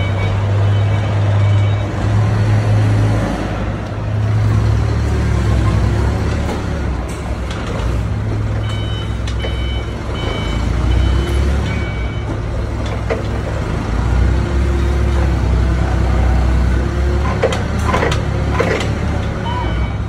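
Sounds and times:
forklift engine droning: 0.0 - 20.0
warning beeps: 8.6 - 12.3, 19.4 - 20.0.

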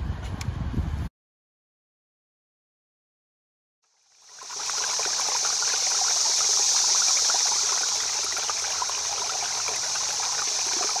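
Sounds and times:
stream water rushing: 4.1 - 11.0.

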